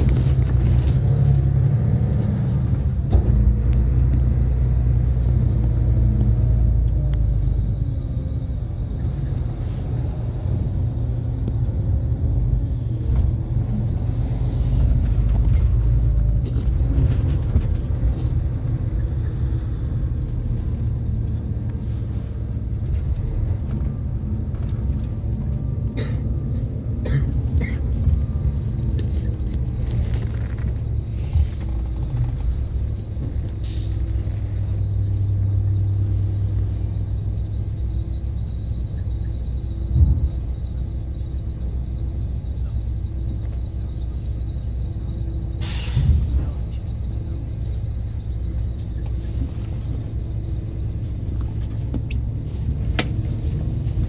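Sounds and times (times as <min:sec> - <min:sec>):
diesel engine rumbling: 0:00.0 - 0:54.0
air brake hiss: 0:45.6 - 0:46.4.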